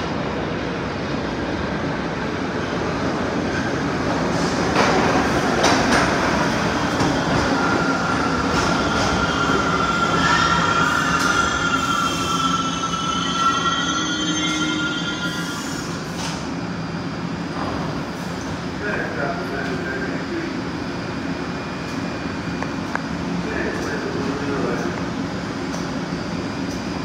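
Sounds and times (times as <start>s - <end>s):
subway train braking: 0.0s - 27.0s
high brake squeal: 7.8s - 16.0s.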